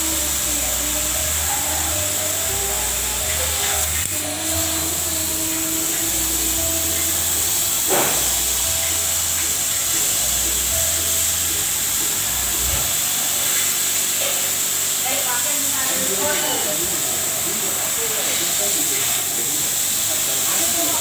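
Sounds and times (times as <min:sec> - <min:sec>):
low motor hum: 0:00.0 - 0:13.0
compressed air hissing: 0:00.0 - 0:21.0.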